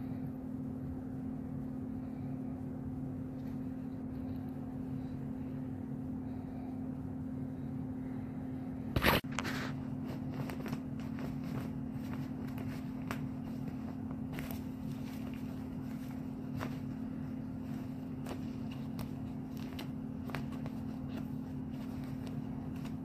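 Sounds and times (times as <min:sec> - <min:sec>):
steady low hum: 0:00.0 - 0:23.0
cats scratching fabric tunnel: 0:09.0 - 0:23.0.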